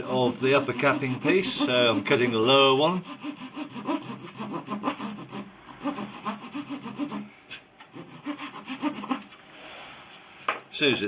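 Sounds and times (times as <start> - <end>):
saw cutting thin wood: 0.0 - 7.3, 7.9 - 9.4.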